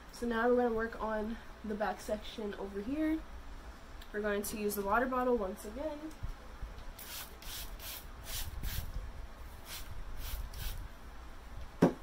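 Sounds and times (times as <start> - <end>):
spray bottle hissing: 7.0 - 8.8.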